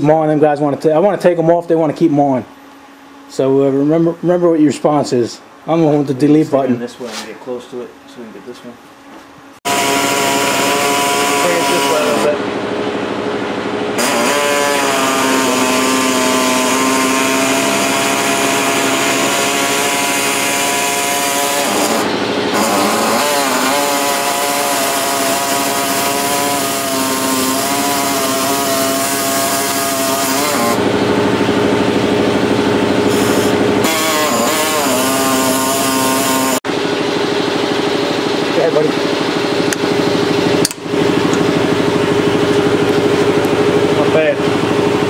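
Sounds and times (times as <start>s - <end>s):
power tool cutting metal: 9.7s - 12.4s, 14.0s - 30.9s, 33.0s - 36.6s.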